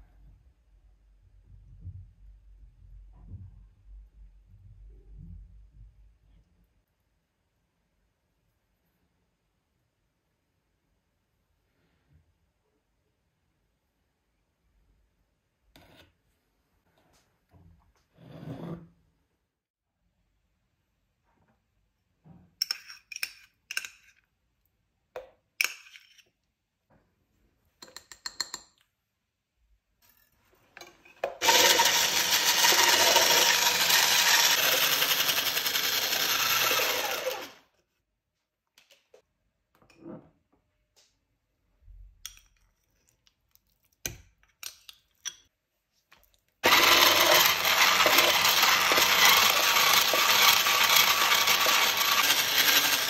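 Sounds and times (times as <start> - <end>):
electric hand mixer running: 31.4 - 37.6, 46.6 - 53.0.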